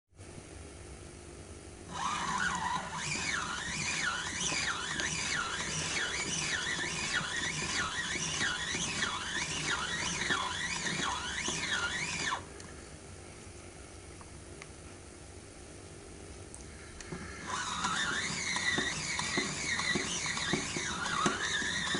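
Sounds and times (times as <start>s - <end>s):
toy washing machine squeaking: 1.9s - 12.4s, 17.4s - 21.9s.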